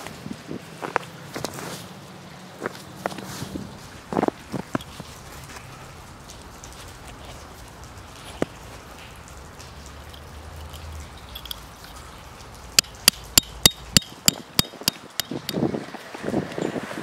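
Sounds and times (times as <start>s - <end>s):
hammer striking tent peg: 12.8s - 15.6s.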